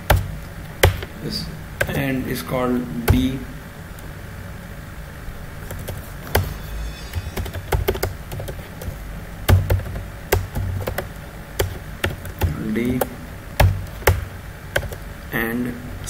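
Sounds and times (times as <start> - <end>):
typing on keyboard: 9.5 - 15.0.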